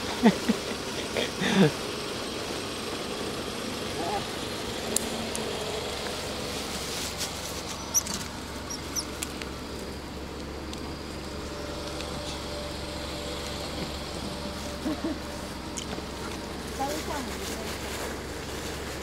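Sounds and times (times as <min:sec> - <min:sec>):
outdoor background hiss: 0:00.0 - 0:19.0
faint high squeaks: 0:07.5 - 0:09.2.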